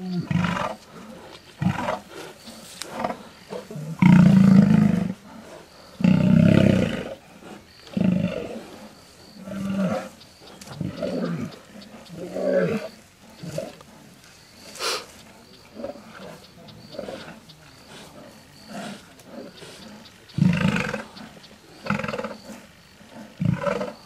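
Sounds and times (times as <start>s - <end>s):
lions growling: 0.0s - 24.0s
lions roaring: 15.6s - 24.0s.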